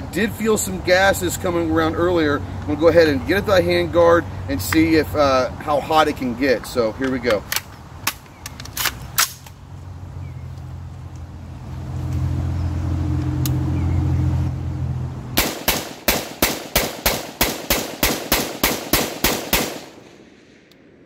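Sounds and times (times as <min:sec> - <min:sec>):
rapid gunfire: 0:15.4 - 0:20.0.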